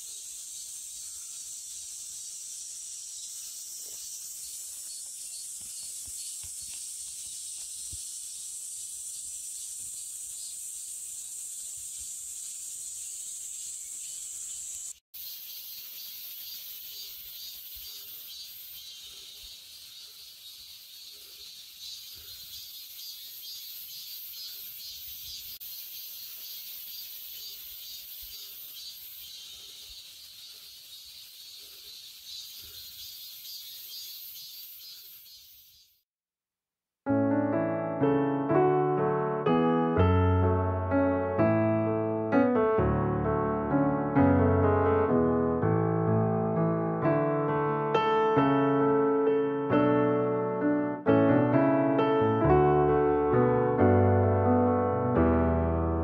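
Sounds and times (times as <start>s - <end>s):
high-pitched insect chorus: 0.0s - 36.0s.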